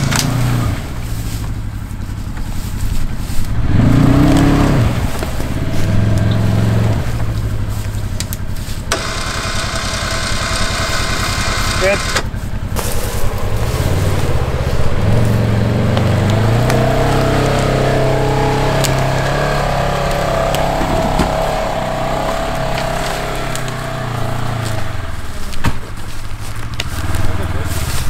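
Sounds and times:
utility vehicle engine running: 0.0 - 28.0
wavering whine: 5.4 - 25.4.

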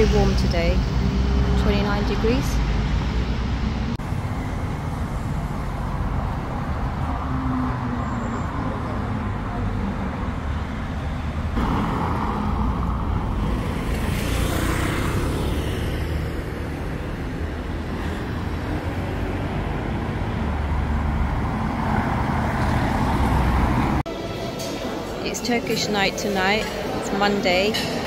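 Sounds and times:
cars passing: 0.0 - 28.0
road traffic rumble: 0.0 - 28.0.

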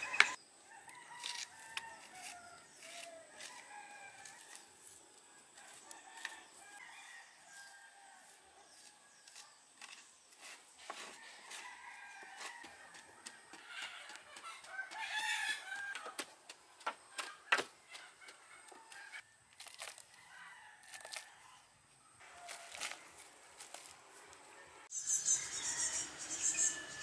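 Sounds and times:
rooster crowing: 0.0 - 4.6, 5.6 - 8.4, 11.1 - 16.2, 24.6 - 27.0
hands scooping soil into basket: 7.5 - 12.8, 17.2 - 20.2, 22.3 - 24.4.

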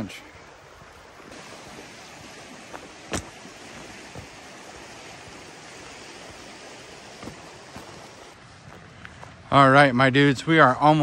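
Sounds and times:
falling water rushing: 0.0 - 8.5.

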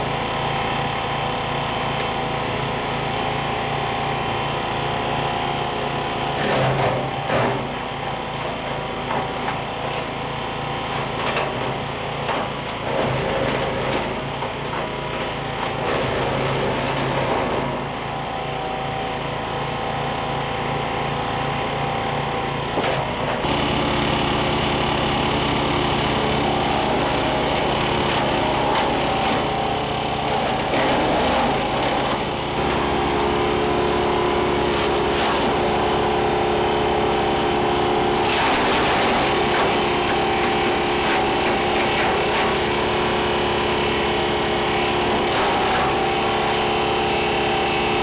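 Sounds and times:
wood chipper engine running: 0.0 - 48.0.

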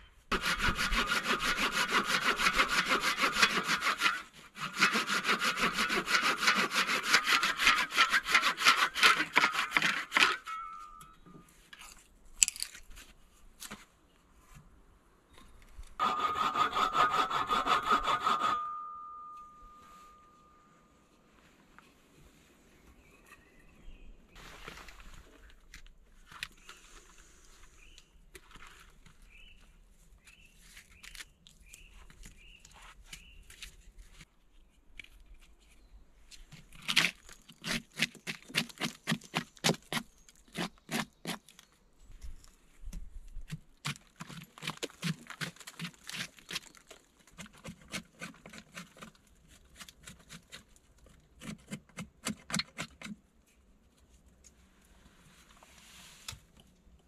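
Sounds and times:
hand tool striking wood or earth: 0.3 - 11.3
faint bird chirps: 22.8 - 24.4.

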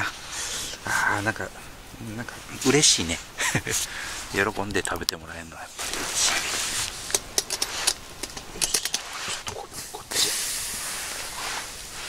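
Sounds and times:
steam hissing: 8.6 - 12.0.

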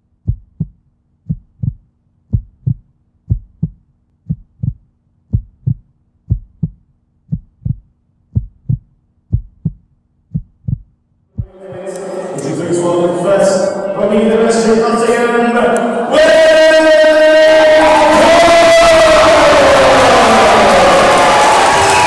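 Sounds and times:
heartbeat thumps: 0.0 - 11.9.

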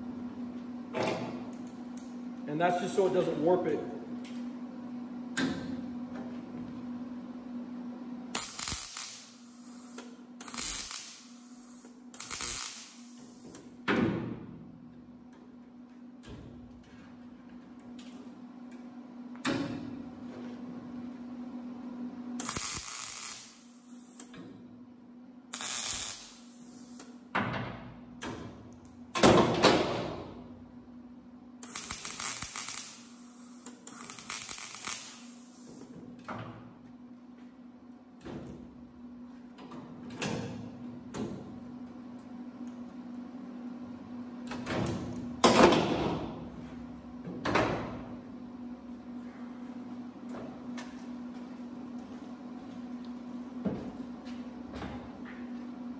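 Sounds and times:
welder crackling: 8.3 - 13.5, 22.4 - 24.3, 25.5 - 27.1, 31.6 - 35.8
welder hum: 8.3 - 13.8, 22.3 - 24.4, 25.5 - 27.2, 31.6 - 36.0.

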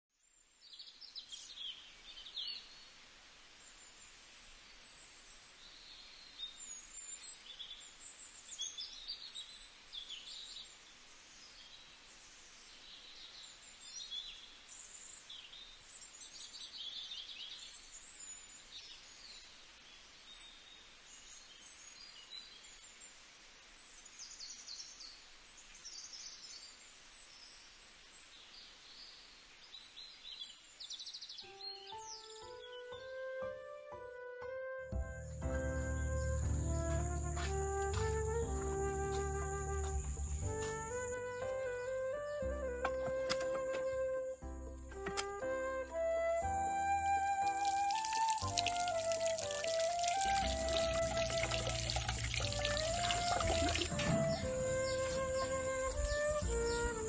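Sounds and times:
steady outdoor hiss: 0.2 - 34.0, 35.0 - 57.0
birds chirping and trilling: 35.0 - 57.0.

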